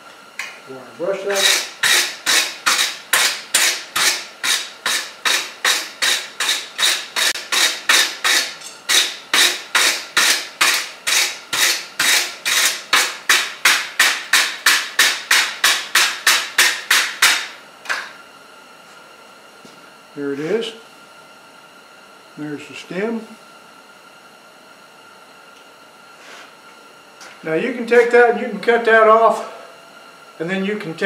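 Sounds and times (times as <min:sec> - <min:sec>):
wire brush scrubbing steel: 0:01.2 - 0:13.1.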